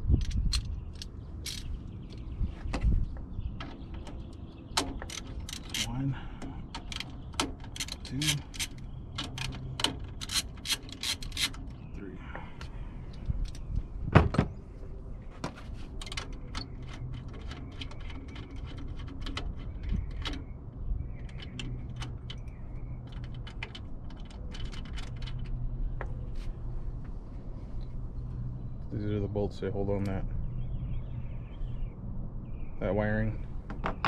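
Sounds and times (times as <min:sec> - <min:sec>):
socket ratchet clicking: 0:04.8 - 0:05.9, 0:06.8 - 0:11.6.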